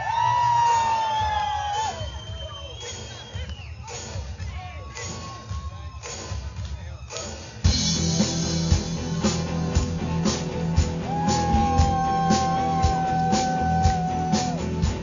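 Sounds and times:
drums steady beat: 0.0 - 15.0
live rock band playing: 7.6 - 15.0.

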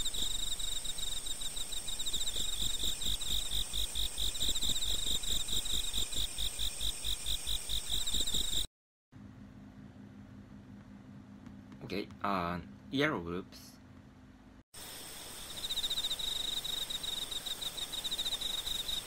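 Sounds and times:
high-pitched cricket-like trill: 0.0 - 8.7, 14.8 - 19.0
faint low hum: 9.2 - 14.6.

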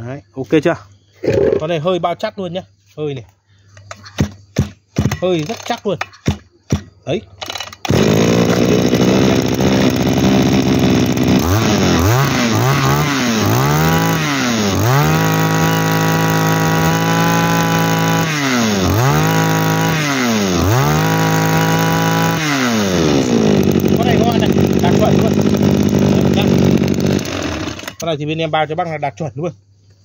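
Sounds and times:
brush cutter engine revving: 5.1 - 5.9, 7.4 - 28.1.

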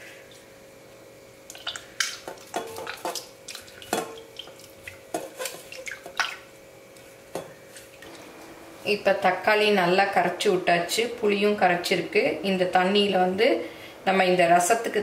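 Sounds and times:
wet squelches and splashes: 1.5 - 8.2.

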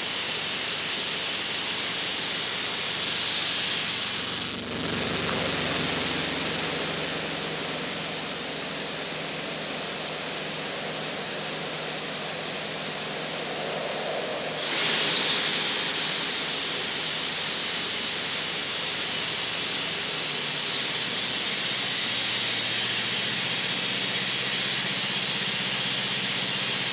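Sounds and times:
air jet hissing through water: 7.8 - 18.9.

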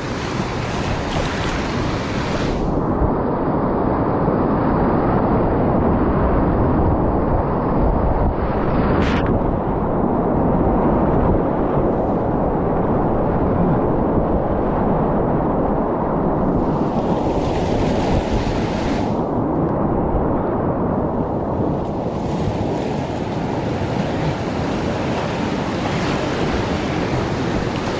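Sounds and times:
whitewater rapid rushing: 0.0 - 2.8, 16.8 - 19.2
wind buffeting microphone: 0.0 - 27.9.

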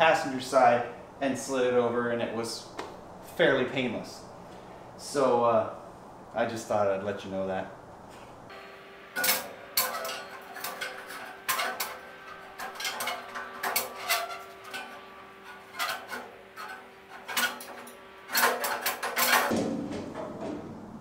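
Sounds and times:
steel tubes clanking: 8.5 - 20.4.

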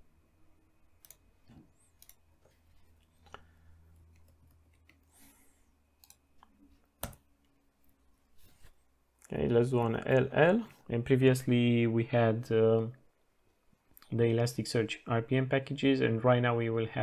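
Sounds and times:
keyboard and mouse clicks: 1.0 - 2.2, 6.0 - 7.3.

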